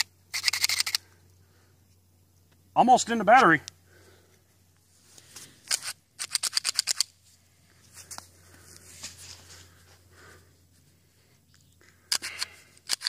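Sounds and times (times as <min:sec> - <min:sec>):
faint handling sounds: 0:03.4 - 0:05.9, 0:07.2 - 0:12.7.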